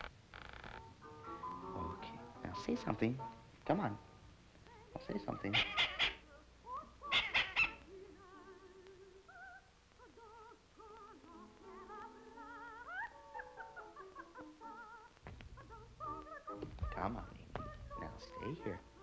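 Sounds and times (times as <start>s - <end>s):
soft music of wavering notes: 0.9s - 4.2s.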